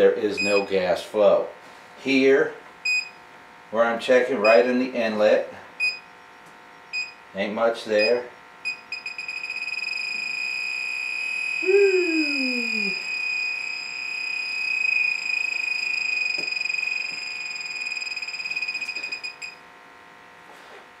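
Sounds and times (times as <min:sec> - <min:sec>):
gas detector pulsing alarm tone: 0:00.4 - 0:00.7, 0:02.9 - 0:03.2, 0:05.8 - 0:07.2, 0:08.0 - 0:19.6
sound sliding down in pitch: 0:11.6 - 0:13.0.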